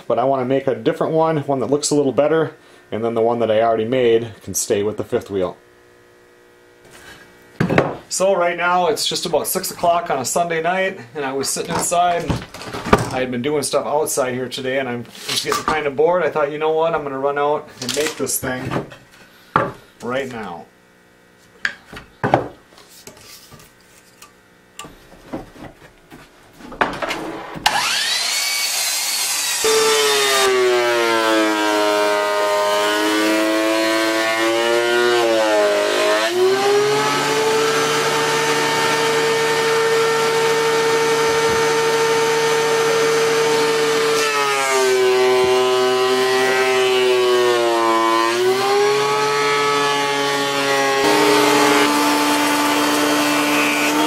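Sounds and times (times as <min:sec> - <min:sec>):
thickness planer running: 0:27.6 - 0:54.0.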